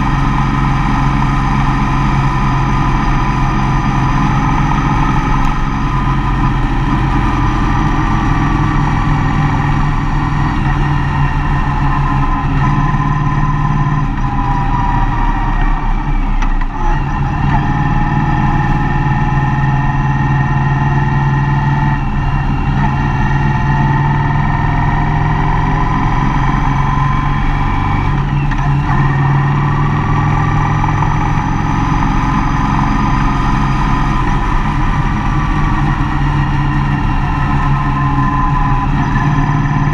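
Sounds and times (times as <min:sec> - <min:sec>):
road noise: 0:00.0 - 0:39.9
van engine running: 0:00.0 - 0:39.9.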